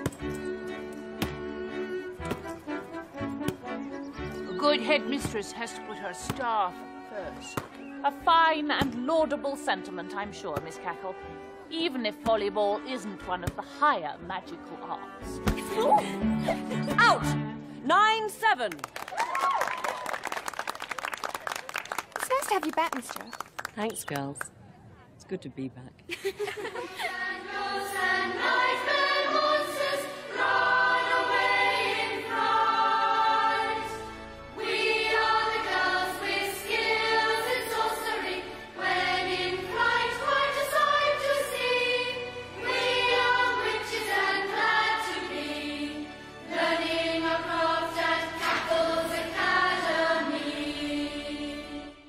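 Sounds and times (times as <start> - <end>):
song with voices singing together: 26.9 - 52.0.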